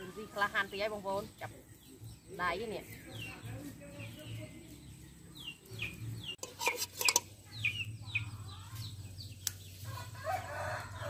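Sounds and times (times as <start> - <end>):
fowl chirping: 3.1 - 10.8.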